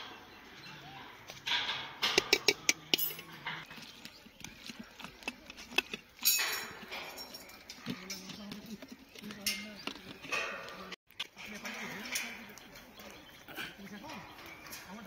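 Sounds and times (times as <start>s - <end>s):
spoon clinking on steel plates: 1.6s - 3.7s, 6.2s - 10.9s.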